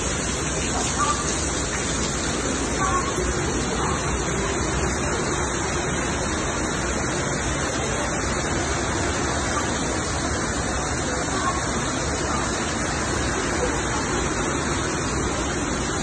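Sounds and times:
torrential rain pouring: 0.0 - 16.0
water streaming off roof: 0.0 - 16.0.

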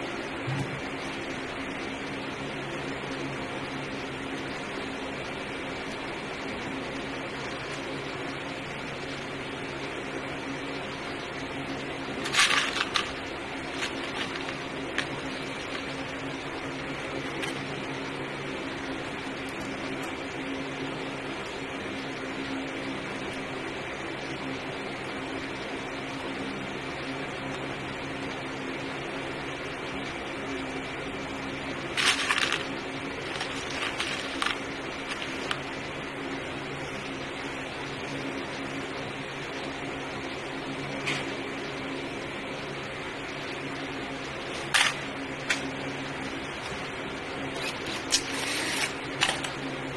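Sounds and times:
low mechanical hum: 0.0 - 49.9
small parts and tools clicking: 12.2 - 15.9, 32.0 - 32.7, 33.3 - 35.6.

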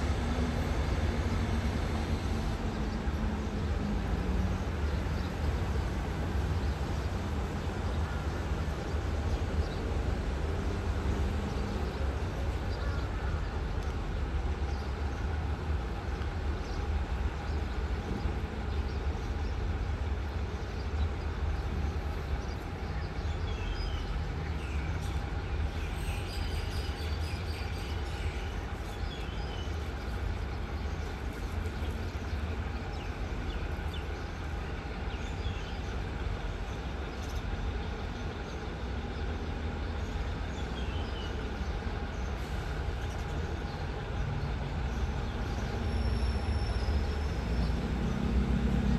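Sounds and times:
locomotive engine rumbling: 0.0 - 48.9.

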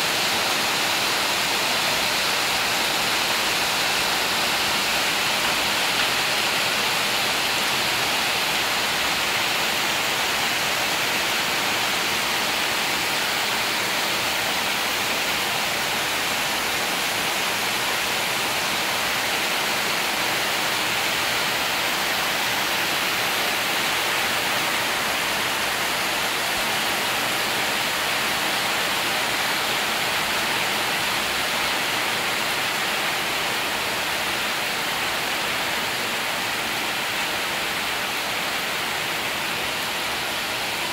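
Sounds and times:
heavy rain on tin roofs: 0.0 - 40.9.

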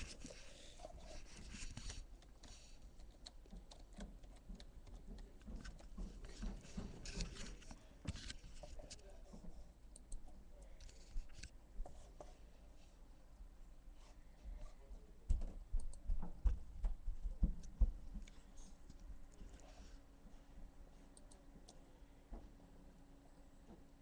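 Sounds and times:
low steady hum: 0.0 - 24.0
keyboard and mouse clicks: 1.5 - 8.7.

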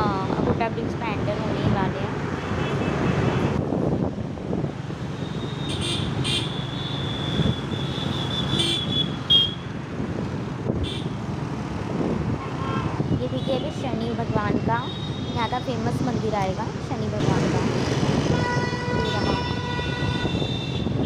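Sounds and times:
road and wind noise: 0.0 - 21.0
shrill vehicle horn toots: 5.3 - 9.6.

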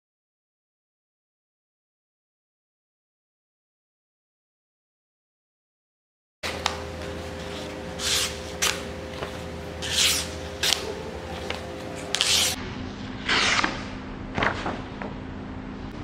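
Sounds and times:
steady low hum: 6.4 - 16.0
knife slicing paper: 7.4 - 8.9, 9.8 - 12.6, 13.3 - 13.9.

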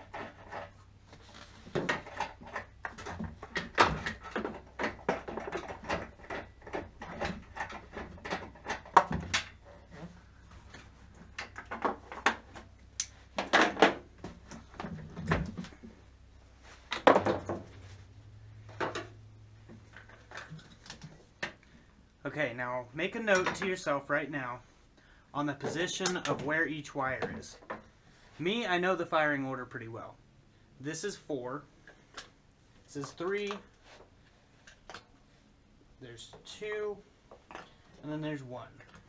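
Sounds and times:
plastic and metal parts clattering: 0.0 - 16.0, 18.6 - 21.7
faint low hum: 0.0 - 39.0.

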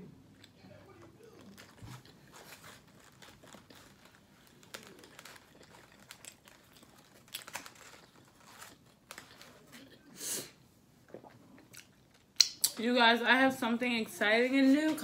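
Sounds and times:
food wrapper crinkling: 0.9 - 10.0.

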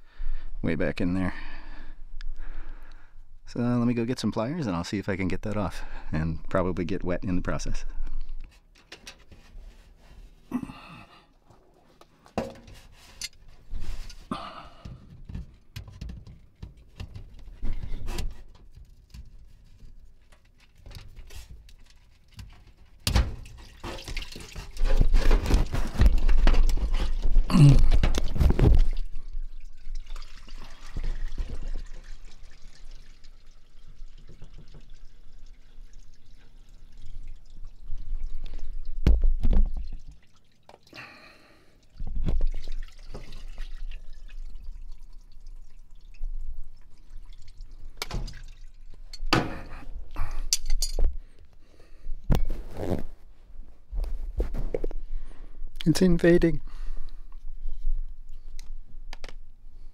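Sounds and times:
water dripping and trickling: 11.4 - 51.0.

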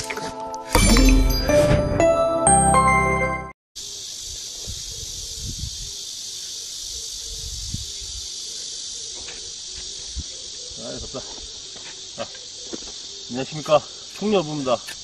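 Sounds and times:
insect chorus drone: 3.8 - 15.0.

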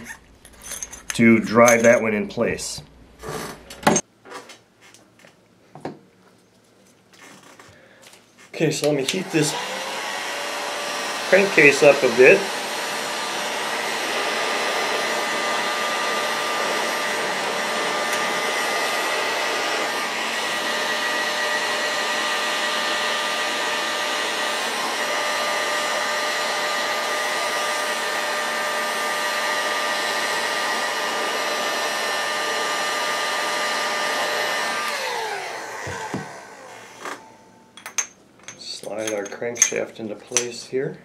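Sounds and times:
heat gun blowing hot air: 8.8 - 37.4.

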